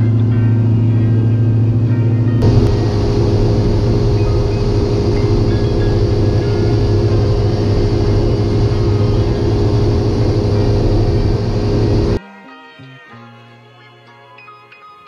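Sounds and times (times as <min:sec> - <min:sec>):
propeller aircraft engine droning: 0:00.0 - 0:12.2
music: 0:00.0 - 0:15.0
rushing air: 0:02.4 - 0:12.2.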